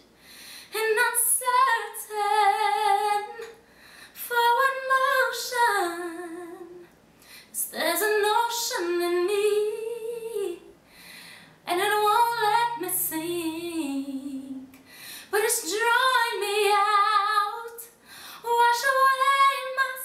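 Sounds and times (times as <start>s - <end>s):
singer breathing: 0.1s - 0.8s, 3.6s - 4.2s, 7.2s - 7.6s, 10.8s - 11.6s, 14.8s - 15.3s, 18.0s - 18.4s
woman singing unaccompanied: 0.8s - 3.6s, 4.2s - 6.9s, 7.6s - 10.7s, 11.7s - 20.0s.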